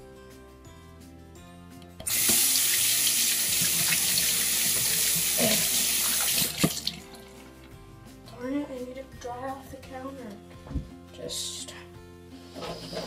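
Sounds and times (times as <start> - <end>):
tap water pouring into sink: 2.0 - 7.2.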